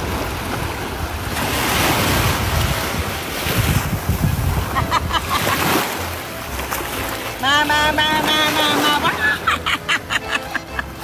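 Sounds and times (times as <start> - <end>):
wind buffeting microphone: 0.0 - 5.6
waves washing onto sandy beach: 0.0 - 9.6.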